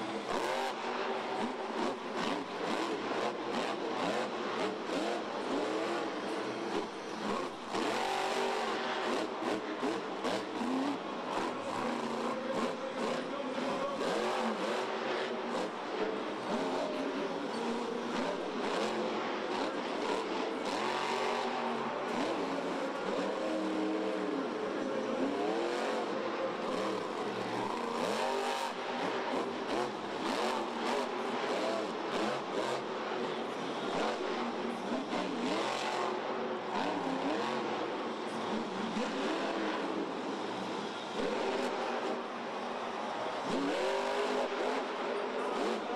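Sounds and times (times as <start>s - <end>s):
monster truck engine revving: 0.0s - 45.9s.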